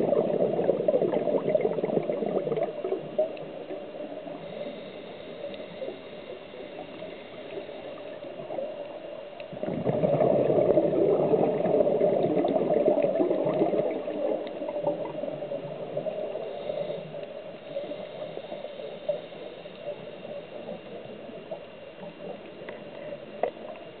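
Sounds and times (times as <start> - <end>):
air bubbles gurgling underwater: 0.0 - 4.5, 7.0 - 16.7
muffled underwater hiss: 0.0 - 24.0.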